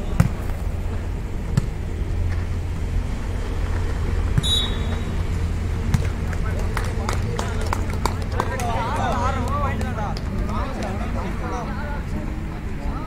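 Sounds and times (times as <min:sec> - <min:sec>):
steady low rumble: 0:00.0 - 0:13.0
volleyball being hit: 0:01.5 - 0:01.8
referee's whistle blast: 0:04.4 - 0:05.0.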